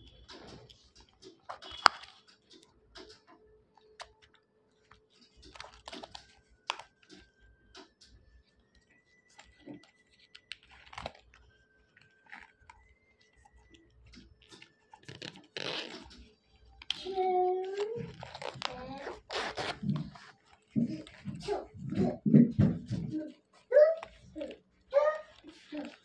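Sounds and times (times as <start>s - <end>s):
wallet handling clicks and rustles: 0.0s - 26.0s
metal zipper: 15.2s - 16.2s, 18.1s - 21.0s.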